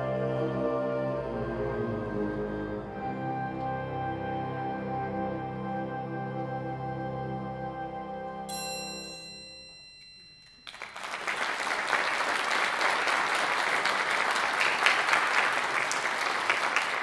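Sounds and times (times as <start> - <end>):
high ringing note: 8.5 - 11.1
audience applauding: 10.5 - 17.0.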